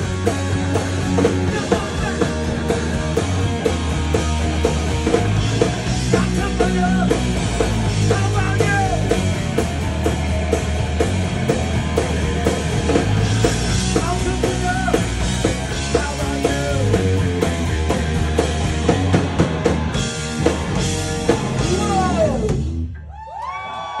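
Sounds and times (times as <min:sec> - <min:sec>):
distorted electric guitar: 0:00.0 - 0:22.9
drum kit: 0:00.0 - 0:23.0
bass guitar: 0:00.0 - 0:23.1
person singing: 0:01.2 - 0:03.0, 0:08.0 - 0:09.2.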